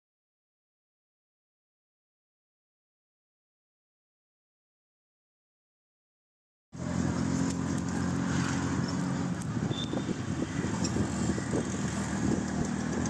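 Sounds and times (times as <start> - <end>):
road rumble: 6.8 - 13.0
street noise: 6.8 - 13.0
vehicle engine running: 6.8 - 13.0.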